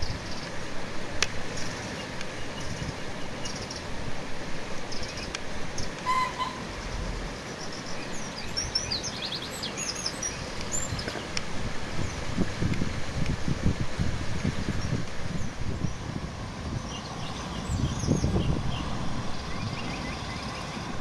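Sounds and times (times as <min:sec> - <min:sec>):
outdoor background hiss: 0:00.0 - 0:21.0
birds chirping: 0:01.5 - 0:04.0, 0:04.7 - 0:11.4, 0:14.7 - 0:21.0.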